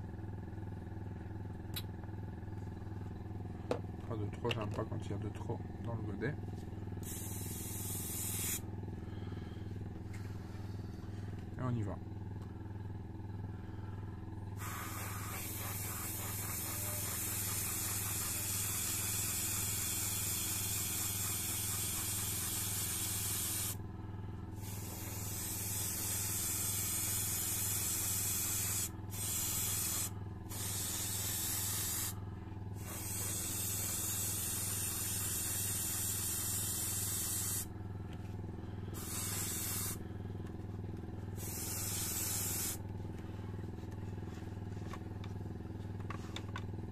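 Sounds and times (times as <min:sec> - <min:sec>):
air compressor humming: 0:00.0 - 0:46.9
airbrush spraying hiss: 0:07.0 - 0:08.6, 0:14.6 - 0:23.8, 0:24.6 - 0:32.2, 0:32.8 - 0:37.7, 0:39.0 - 0:40.0, 0:41.4 - 0:42.8.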